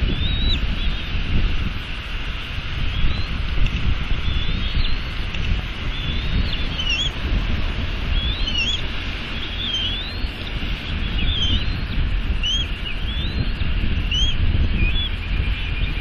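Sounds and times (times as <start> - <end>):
high chirping bird calls: 0.0 - 1.1, 2.8 - 3.4, 4.1 - 7.2, 8.0 - 16.0
rain hiss: 0.0 - 16.0
wind rumbling on microphone: 0.0 - 16.0.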